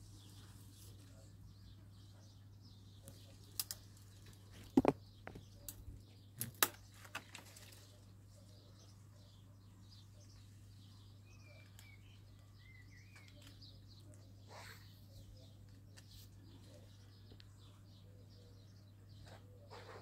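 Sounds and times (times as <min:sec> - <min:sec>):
faint bird chirps: 0:00.0 - 0:20.0
sharp clicks and knocks: 0:04.6 - 0:05.8.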